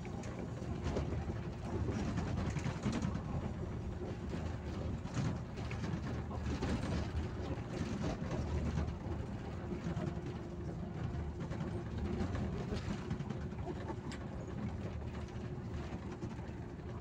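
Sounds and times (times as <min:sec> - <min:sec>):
bus engine drone: 0:00.0 - 0:17.0.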